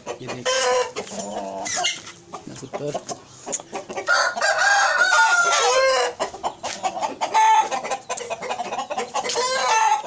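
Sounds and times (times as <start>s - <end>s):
rooster clucking: 0.0s - 10.0s
rooster crowing: 4.0s - 6.2s, 9.3s - 10.0s.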